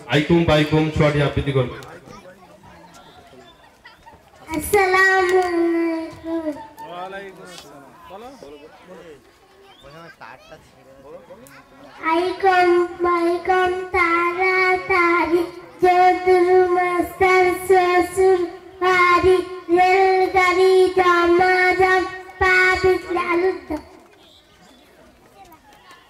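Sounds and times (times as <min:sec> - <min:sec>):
girl chanting a rhyme: 0:04.5 - 0:06.6, 0:12.0 - 0:23.9.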